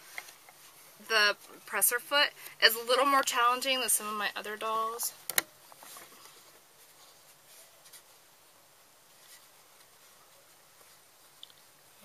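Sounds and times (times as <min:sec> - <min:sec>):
fabric rustling and scuffing: 0:05.6 - 0:08.4.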